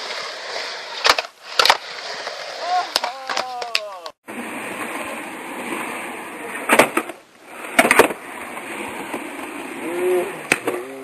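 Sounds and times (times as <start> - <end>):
skateboard wheels rolling on concrete: 0.0 - 11.0
skateboard clacks: 10.4 - 11.0.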